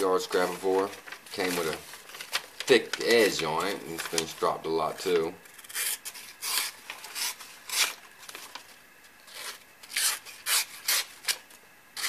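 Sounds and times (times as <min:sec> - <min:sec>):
knife slicing through paper: 0:00.4 - 0:03.2.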